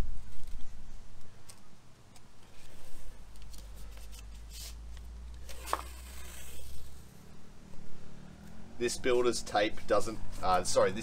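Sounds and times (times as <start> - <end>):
tape crackling and rustling: 0.0 - 8.6
tape tearing peel: 0.2 - 7.3.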